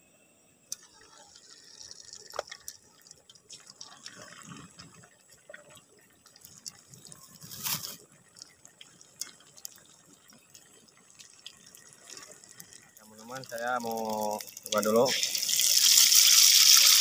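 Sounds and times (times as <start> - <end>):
food sizzling in hot oil: 11.3 - 17.0.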